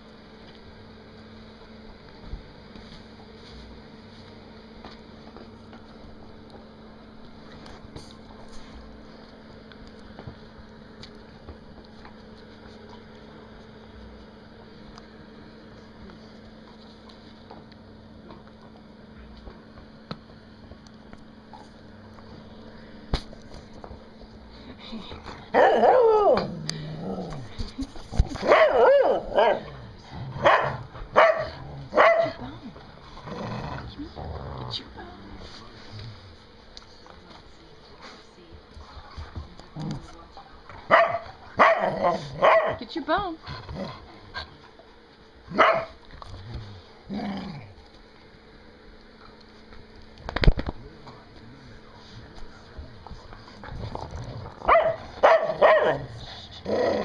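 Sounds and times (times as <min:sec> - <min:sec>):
dog barking: 0:28.4 - 0:29.6, 0:30.4 - 0:32.4, 0:40.9 - 0:42.8, 0:45.5 - 0:46.0, 0:54.7 - 0:56.1
dog grumbling: 0:33.1 - 0:35.0, 0:46.4 - 0:47.8, 0:55.5 - 0:57.0.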